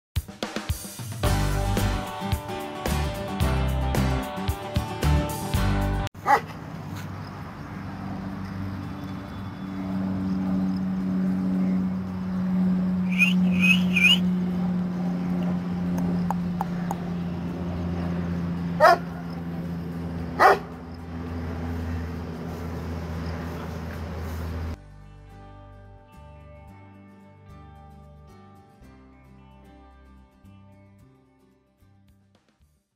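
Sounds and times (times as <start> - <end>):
dog barking deeply: 6.2 - 6.6, 18.8 - 19.2, 20.4 - 20.8
steady low hum: 9.6 - 24.8.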